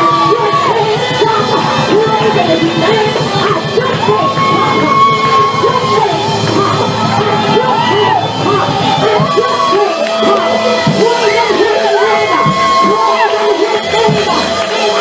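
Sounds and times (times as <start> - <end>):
loud fast music with driving beat: 0.0 - 15.0
congregation shouting: 3.8 - 15.0.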